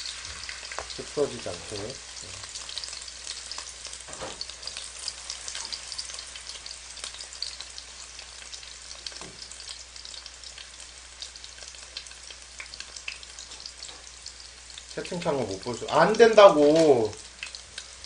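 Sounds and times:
fish sizzling in hot oil: 0:00.0 - 0:18.0.

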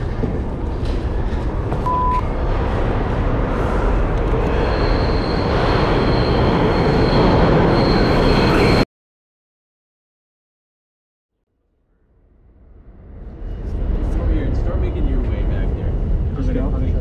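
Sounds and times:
subway train rumbling: 0:00.0 - 0:08.8, 0:12.4 - 0:17.0
short beep: 0:01.8 - 0:02.3
high wheel squeal: 0:04.4 - 0:08.8.

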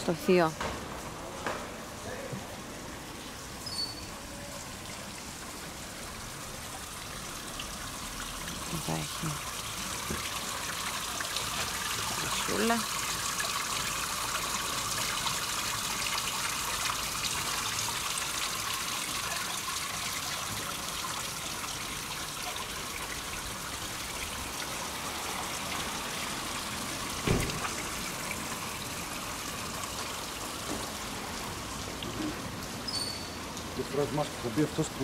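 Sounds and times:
water trickling: 0:00.0 - 0:35.0
short thump: 0:27.2 - 0:27.6.

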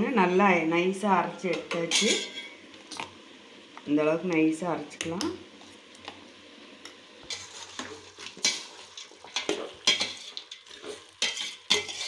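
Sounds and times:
chicken sizzling in oil: 0:01.4 - 0:12.0
metal spoon scraping a pot: 0:07.3 - 0:12.0.

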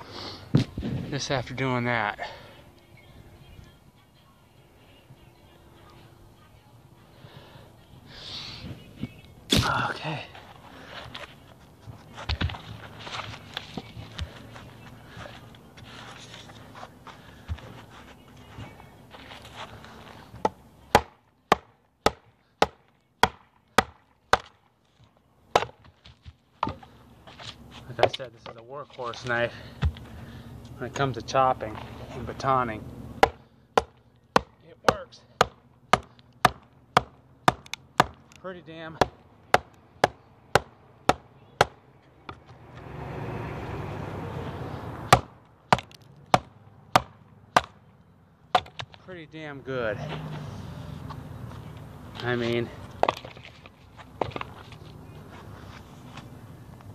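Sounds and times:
cleaver chopping into log: 0:20.4 - 0:24.6, 0:25.5 - 0:25.9, 0:33.2 - 0:38.2, 0:45.1 - 0:47.8, 0:48.5 - 0:49.0.

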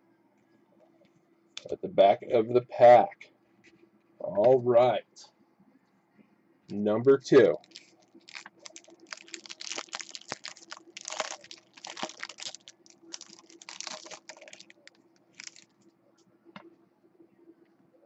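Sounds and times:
plastic wrapper crinkling: 0:07.4 - 0:15.9.

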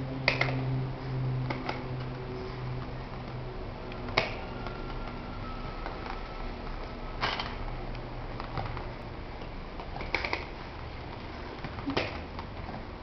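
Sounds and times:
low hum: 0:00.0 - 0:09.8.

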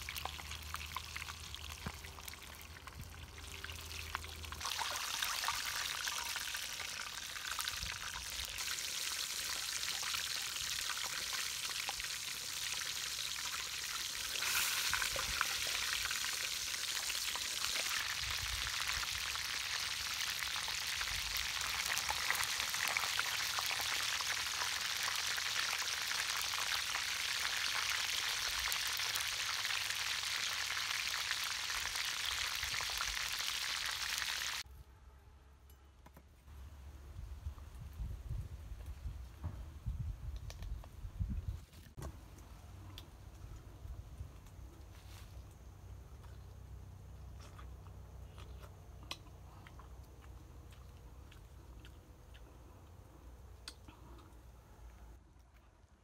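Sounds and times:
chicken deep-frying in oil: 0:00.0 - 0:34.7.

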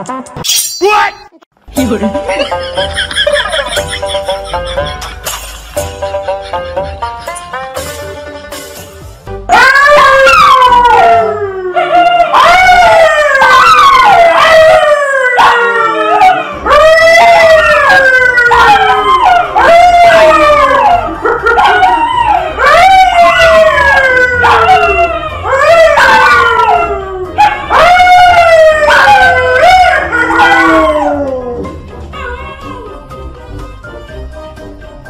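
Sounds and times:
man howling: 0:09.5 - 0:31.7
dogs howling: 0:09.5 - 0:33.1.

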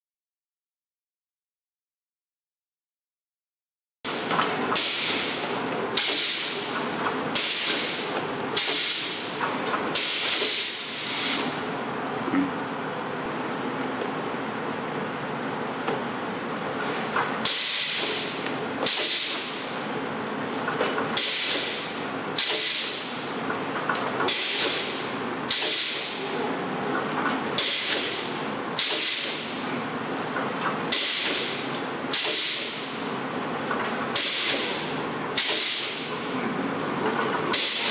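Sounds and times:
machine running with high tone: 0:04.1 - 0:37.9
short sharp air hisses: 0:07.4 - 0:09.2, 0:10.0 - 0:11.6, 0:17.4 - 0:19.5, 0:21.2 - 0:23.0, 0:34.2 - 0:36.0.

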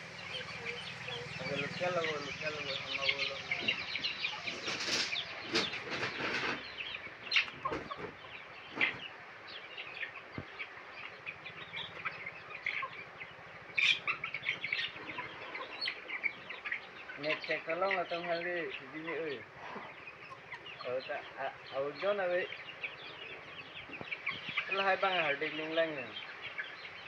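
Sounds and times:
chickens clucking: 0:00.0 - 0:27.0
chicks cheeping: 0:00.0 - 0:27.0
wings flapping: 0:00.4 - 0:06.7.

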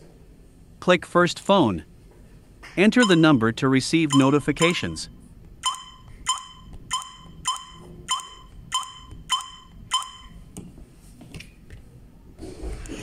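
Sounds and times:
keypad beeps: 0:03.0 - 0:03.4, 0:04.0 - 0:10.4.

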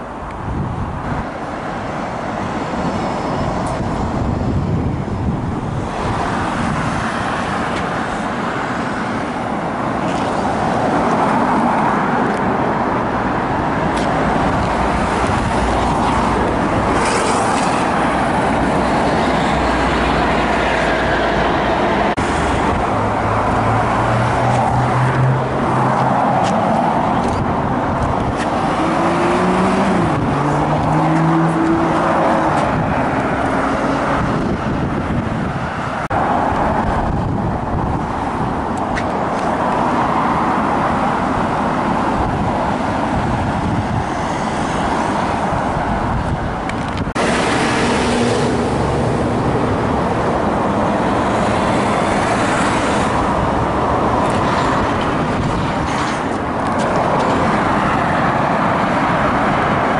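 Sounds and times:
cars driving past: 0:00.0 - 0:59.9
car accelerating: 0:27.9 - 0:34.7.

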